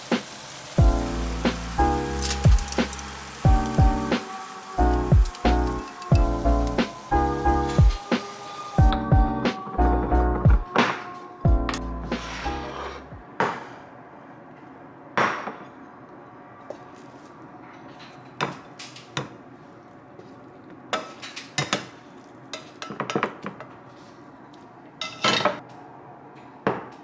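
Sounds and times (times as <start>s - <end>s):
utensils clinking against ceramic bowl: 5.2s - 6.4s.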